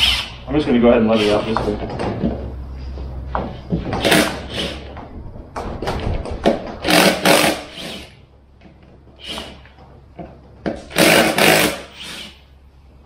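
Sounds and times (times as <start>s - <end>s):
impact driver loosening bolts: 10.7s - 12.4s.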